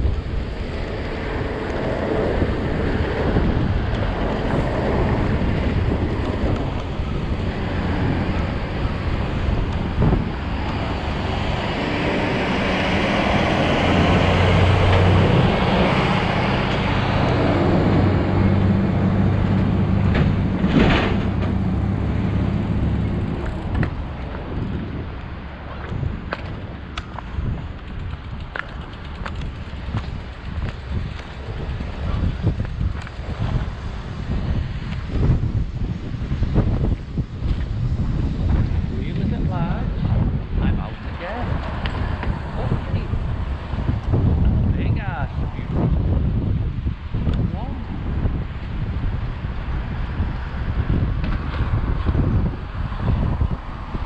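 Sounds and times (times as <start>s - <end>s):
wind rushing over microphone: 0.0s - 54.0s.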